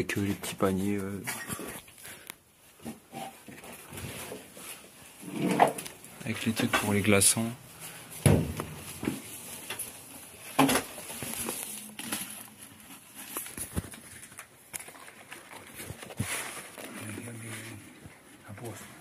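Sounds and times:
papers rustling and clicks: 0:08.2 - 0:18.8.

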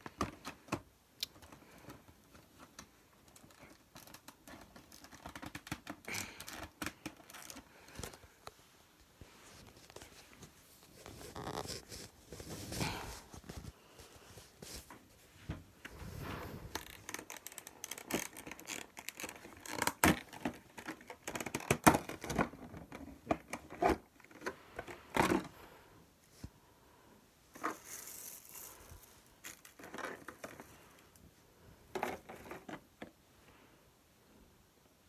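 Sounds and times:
plastic packaging crinkling: 0:03.2 - 0:08.2, 0:16.7 - 0:25.4, 0:27.6 - 0:31.0.

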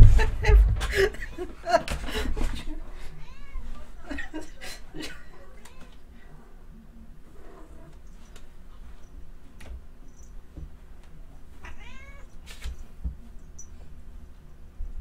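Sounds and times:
cat meowing: 0:11.6 - 0:12.3.

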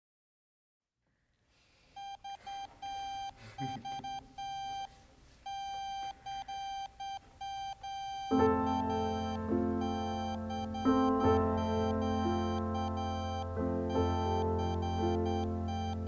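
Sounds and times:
electronic beep tone pulses: 0:05.5 - 0:16.0.

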